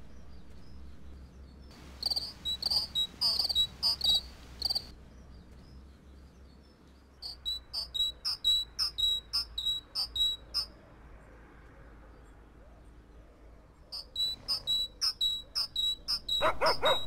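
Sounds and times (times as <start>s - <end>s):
faint low hum: 0.0s - 17.0s
high-pitched chirps: 1.7s - 4.9s, 7.2s - 10.7s, 14.0s - 17.0s.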